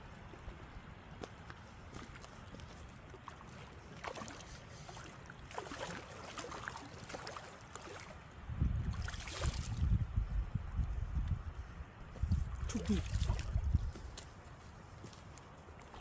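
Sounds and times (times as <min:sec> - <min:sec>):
river water gurgling: 0:00.0 - 0:09.9, 0:12.4 - 0:13.8
fish splashing: 0:03.2 - 0:08.1.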